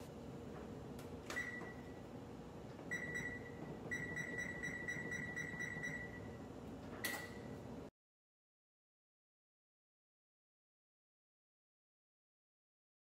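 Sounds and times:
oven keypad beeps: 1.3s - 2.0s, 2.9s - 6.4s, 7.0s - 7.6s.

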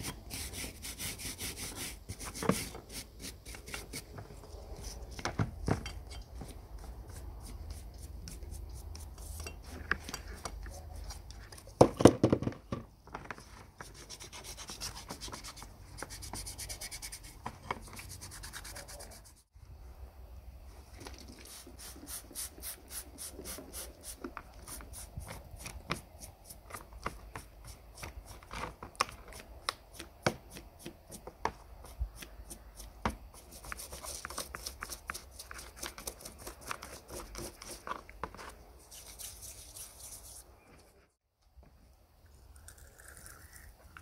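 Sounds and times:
hand rubbing a part: 30.4s - 41.0s.

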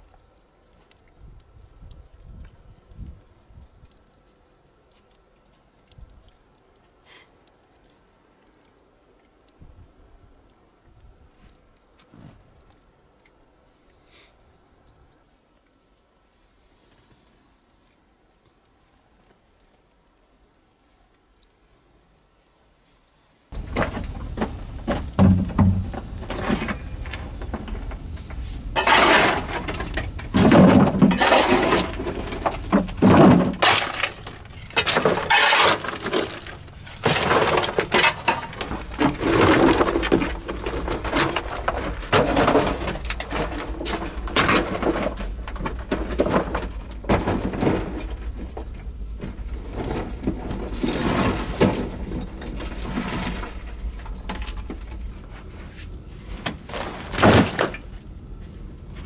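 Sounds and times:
rock chunks crumbling to floor: 23.5s - 55.4s, 56.6s - 58.1s.

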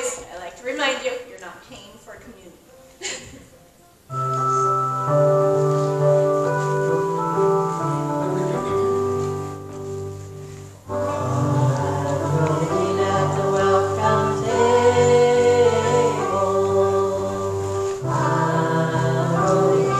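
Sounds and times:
organ-like hymn chords: 4.1s - 19.9s.

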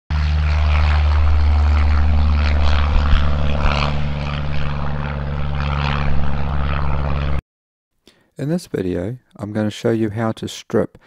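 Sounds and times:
light aircraft engine drone: 0.1s - 7.4s
propeller rush: 0.1s - 7.4s.

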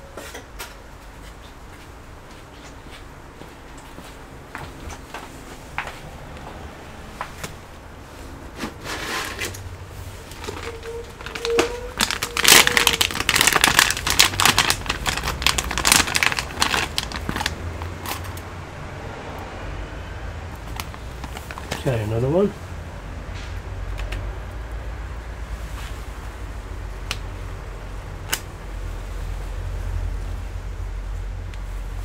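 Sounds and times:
plastic bag crinkling: 8.7s - 18.4s, 20.6s - 22.3s.

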